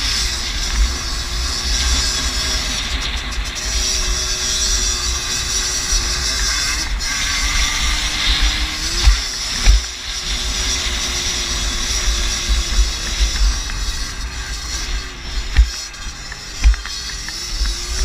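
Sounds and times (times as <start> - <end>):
moped engine running: 0.0 - 18.0
wind rumble on microphone: 0.0 - 18.0
sharp thumps: 8.3 - 10.1, 12.4 - 18.0.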